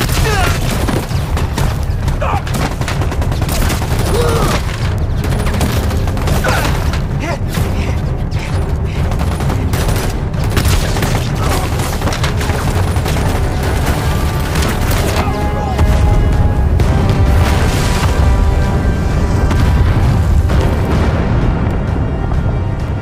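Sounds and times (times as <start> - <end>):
rapid gunfire: 0.0 - 18.6
booming explosions: 0.0 - 23.0
heavy low rumble: 11.6 - 23.0.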